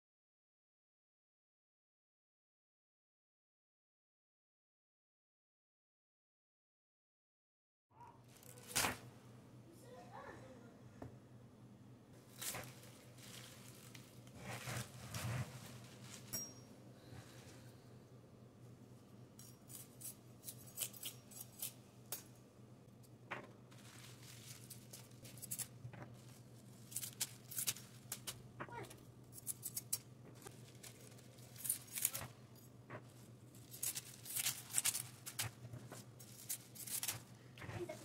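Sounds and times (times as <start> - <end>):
low steady hum: 8.1 - 38.0
kale leaves tearing and rustling: 8.3 - 9.1, 12.2 - 16.3, 23.7 - 28.4, 29.3 - 32.4, 33.0 - 37.3.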